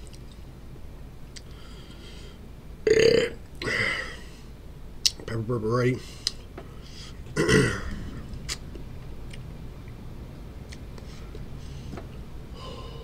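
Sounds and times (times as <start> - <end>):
man burping: 2.9 - 4.2, 7.3 - 8.2.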